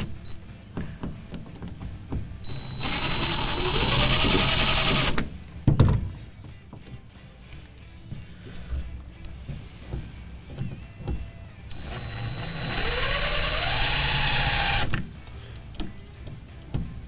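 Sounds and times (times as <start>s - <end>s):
cordless drill whining: 2.4s - 5.3s, 11.7s - 15.0s.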